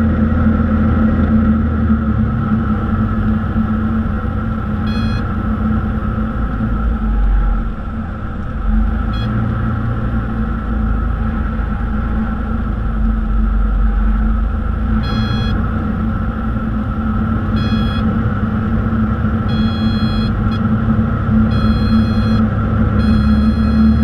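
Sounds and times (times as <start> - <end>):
airplane engine and propeller: 0.0 - 24.0
short high beeps: 4.9 - 5.3, 9.2 - 9.4, 15.0 - 15.6, 17.6 - 18.1, 19.5 - 20.6, 21.5 - 22.4, 23.0 - 24.0.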